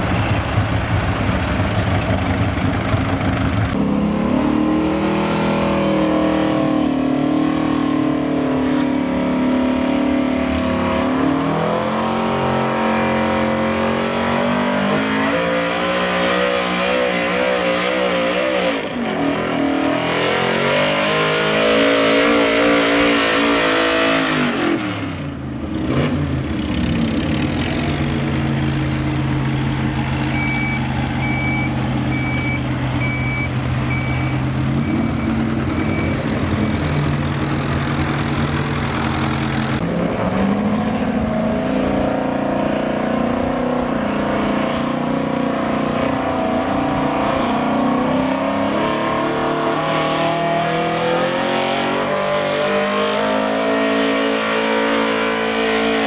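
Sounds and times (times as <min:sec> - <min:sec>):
truck engine idling: 0:00.0 - 0:03.8, 0:28.3 - 0:39.8
truck engine under load: 0:00.0 - 0:05.9, 0:24.8 - 0:48.8
short electronic beeps: 0:30.2 - 0:37.0.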